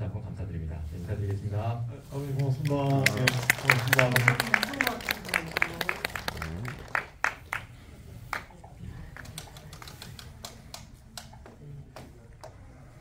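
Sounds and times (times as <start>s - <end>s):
audience clapping: 2.3s - 10.9s.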